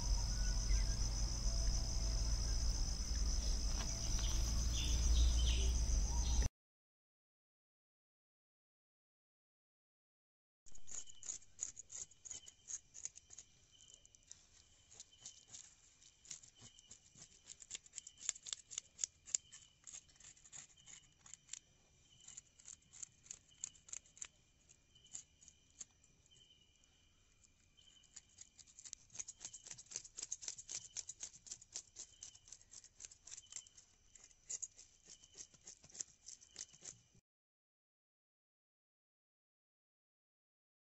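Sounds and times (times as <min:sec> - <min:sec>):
insect chirp pulsing: 0:00.0 - 0:06.5, 0:10.7 - 0:37.0
insect high trill: 0:00.0 - 0:06.5
high-pitched insect clicking: 0:10.7 - 0:26.5, 0:27.8 - 0:37.0.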